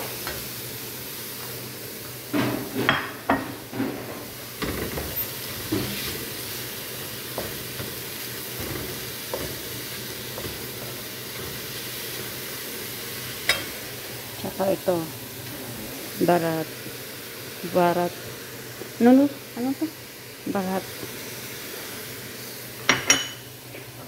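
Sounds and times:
vegetables sizzling in a frying pan: 0:00.0 - 0:24.0
spatula scraping and knocking pan: 0:07.3 - 0:12.3.

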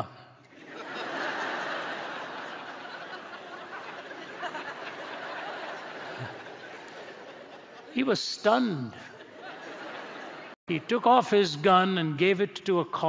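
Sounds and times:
large audience laughing: 0:00.4 - 0:10.6.

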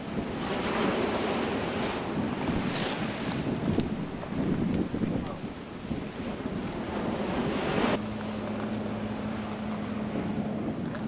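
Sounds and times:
wind and sea wash: 0:00.0 - 0:11.0
wind noise on microphone: 0:00.0 - 0:11.0
low engine hum: 0:06.7 - 0:11.0.

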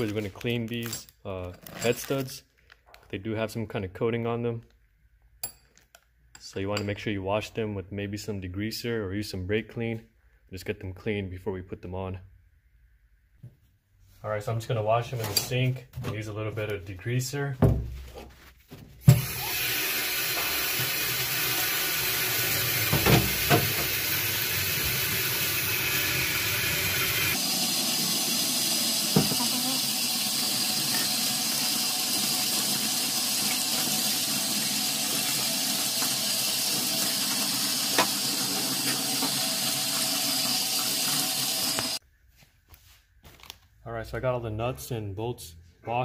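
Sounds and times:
tap water running into sink: 0:19.1 - 0:42.0.

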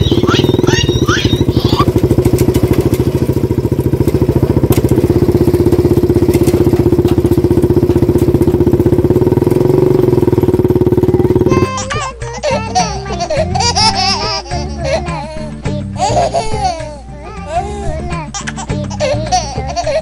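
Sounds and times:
small tractor engine putter: 0:00.0 - 0:11.8.

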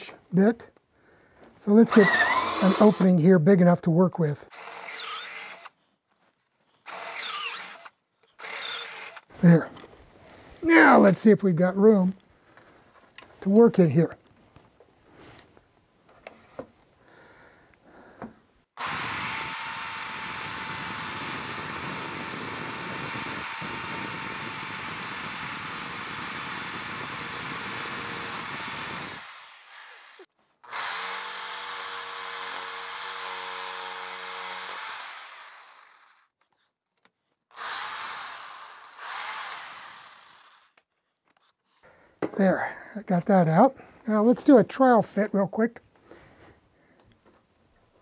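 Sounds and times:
jigsaw cutting wood: 0:01.8 - 0:03.2, 0:04.5 - 0:05.8, 0:06.8 - 0:09.3, 0:18.8 - 0:36.3, 0:37.5 - 0:40.8.

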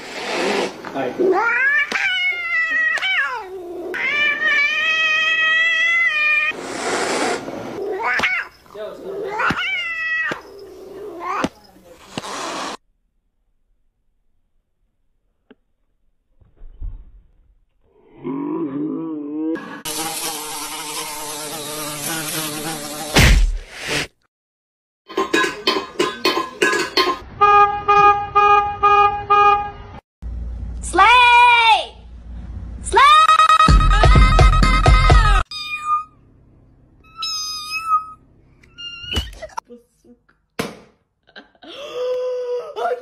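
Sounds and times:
cat hissing: 0:00.0 - 0:12.8
cat meowing: 0:01.2 - 0:06.6, 0:07.8 - 0:11.5, 0:35.5 - 0:36.2, 0:37.1 - 0:39.2
loud thump: 0:23.2 - 0:23.7.

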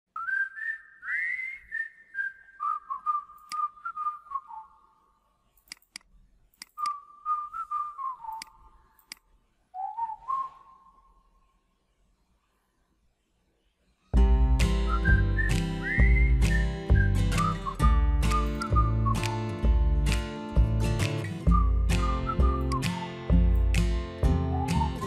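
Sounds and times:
whistled tune: 0:00.2 - 0:05.0, 0:06.8 - 0:08.6, 0:09.8 - 0:11.2, 0:14.2 - 0:19.6, 0:21.0 - 0:25.0.

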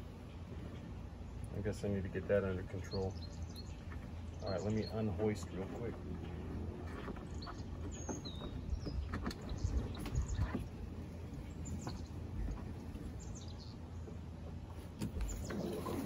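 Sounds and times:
bird chirping: 0:02.2 - 0:14.3
rigging clicks and knocks: 0:05.2 - 0:13.1.

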